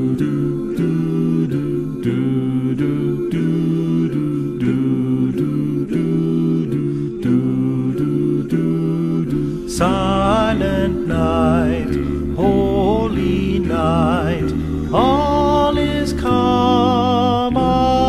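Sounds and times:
sustained instrumental chords: 0:00.0 - 0:18.0.

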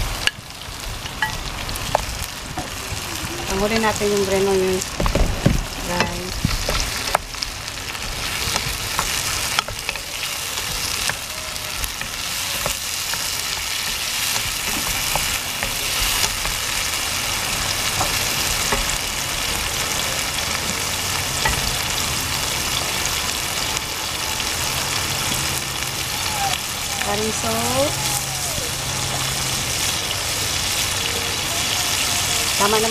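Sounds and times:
vegetables sizzling in a pan: 0:00.0 - 0:32.9.

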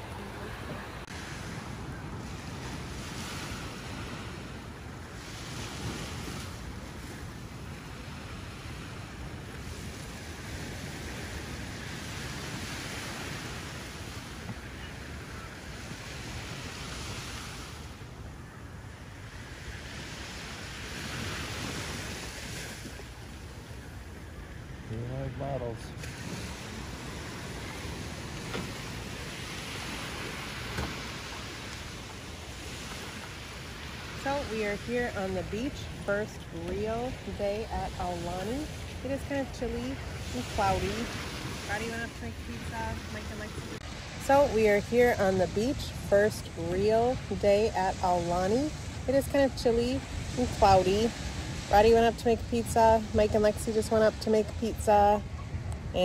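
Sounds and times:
small waves washing onto sand: 0:00.0 - 0:56.0
wind rumble on microphone: 0:00.0 - 0:56.0.

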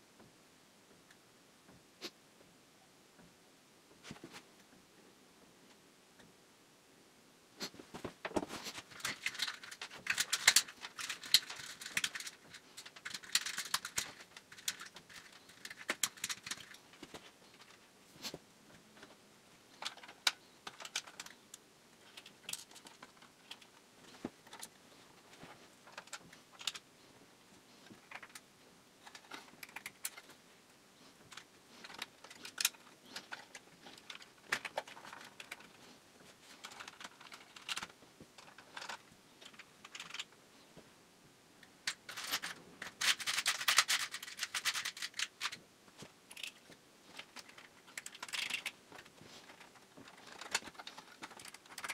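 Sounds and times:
clicks and rustles of handling parts: 0:07.7 - 0:40.9, 0:41.6 - 0:51.9.

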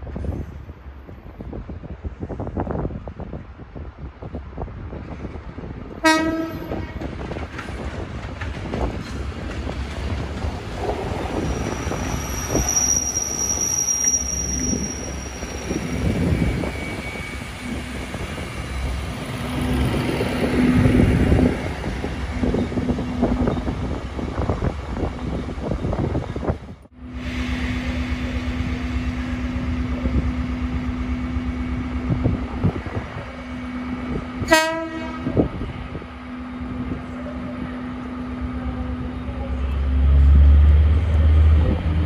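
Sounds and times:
locomotive horn blast: 0:06.0 - 0:07.0, 0:34.4 - 0:35.4
high wheel squeal: 0:11.2 - 0:19.4.

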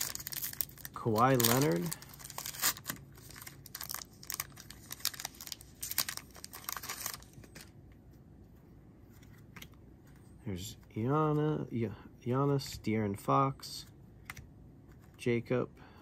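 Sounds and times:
plastic wrapper crinkling: 0:00.0 - 0:07.7.

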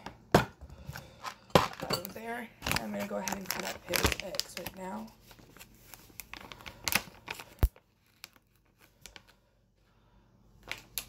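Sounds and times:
rustling handling noise: 0:00.9 - 0:09.4.

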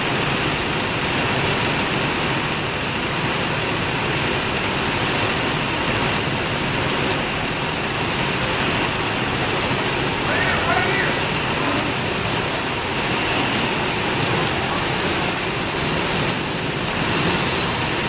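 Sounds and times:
go-kart engines in a hall: 0:00.0 - 0:18.0.

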